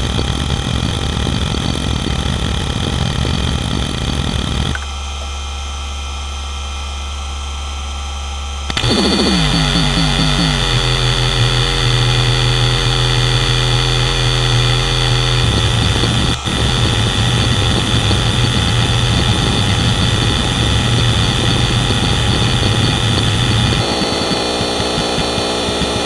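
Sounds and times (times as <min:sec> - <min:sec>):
spindle hum: 0:08.5 - 0:26.0
buzzing tone falling in pitch: 0:08.7 - 0:26.0.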